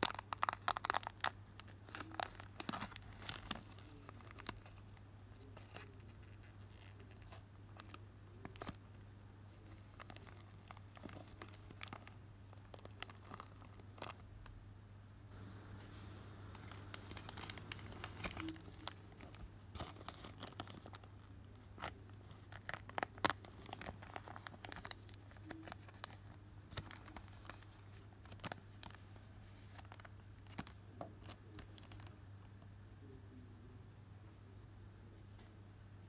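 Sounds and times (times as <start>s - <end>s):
foil wrapper crinkling: 0.0s - 14.5s, 16.6s - 32.2s
low hum: 14.5s - 19.7s.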